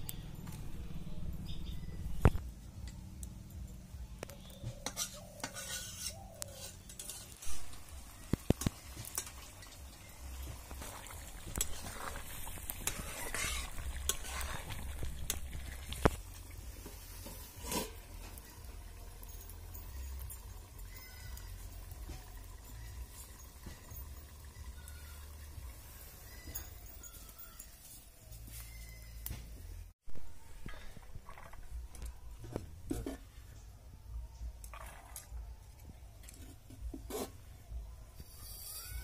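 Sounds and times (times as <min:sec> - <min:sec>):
metal spatula scraping pan: 0:04.8 - 0:07.9, 0:08.6 - 0:16.1, 0:17.1 - 0:18.2, 0:36.4 - 0:37.5
food sizzling: 0:04.8 - 0:26.5.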